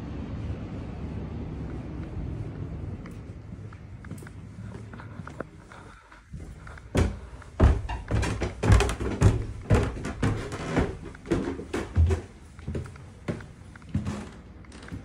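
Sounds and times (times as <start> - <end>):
footsteps on wooden stairs: 4.8 - 15.0.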